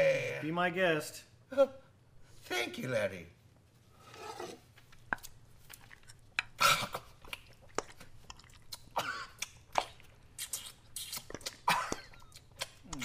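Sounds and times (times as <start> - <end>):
man chewing noisily: 4.8 - 13.0.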